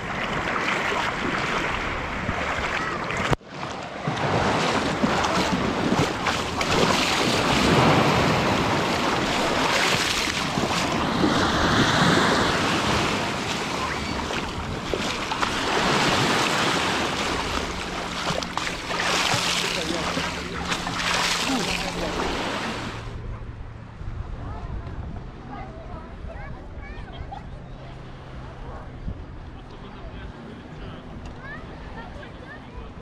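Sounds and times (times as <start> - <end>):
small waves washing over pebbles: 0.0 - 23.1.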